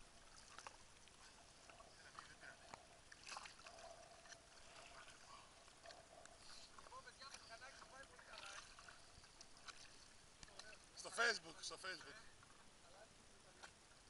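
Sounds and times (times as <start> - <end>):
water lapping against hull: 0.0 - 12.8
small ticks: 5.6 - 7.9.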